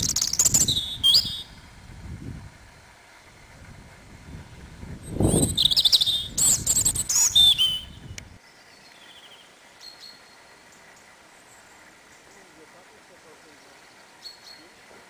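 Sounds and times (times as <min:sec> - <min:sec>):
faint distant bird chirps: 0:00.0 - 0:01.7, 0:05.0 - 0:12.8, 0:13.4 - 0:15.0
robin singing: 0:00.0 - 0:01.7, 0:05.0 - 0:12.8, 0:13.4 - 0:15.0.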